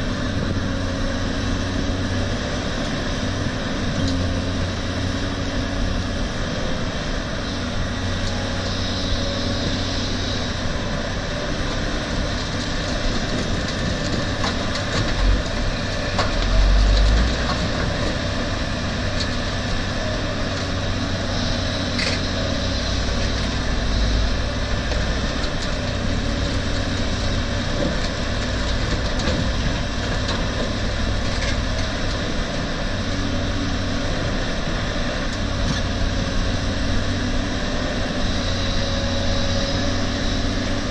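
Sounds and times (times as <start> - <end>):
dump truck diesel engine: 0.0 - 40.9
excavator diesel engine under load: 0.0 - 40.9.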